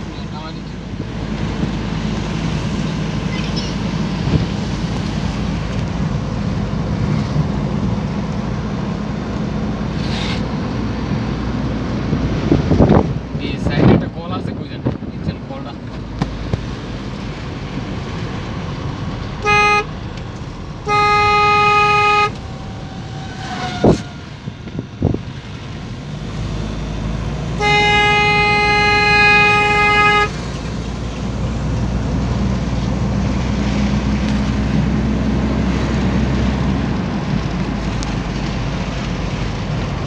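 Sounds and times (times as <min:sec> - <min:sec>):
road rumble: 0:00.0 - 0:40.0
engine running: 0:15.4 - 0:40.0
vehicle horn blasts: 0:19.4 - 0:19.9, 0:20.8 - 0:22.6, 0:27.6 - 0:30.4.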